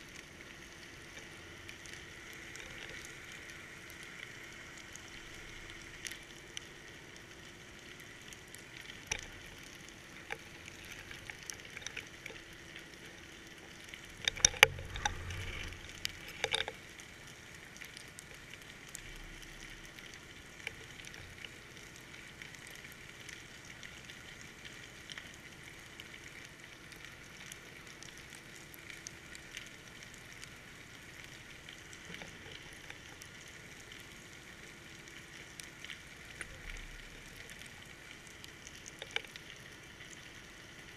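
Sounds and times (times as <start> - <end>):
underwater crackling: 0.0 - 40.9.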